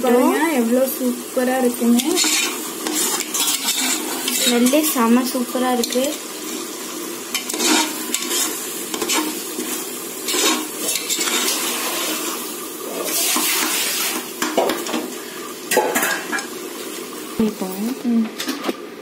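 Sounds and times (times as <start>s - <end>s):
food sizzling in oil: 0.0s - 19.0s
ladle scraping metal pot: 2.0s - 5.0s, 7.3s - 9.4s, 10.3s - 12.4s.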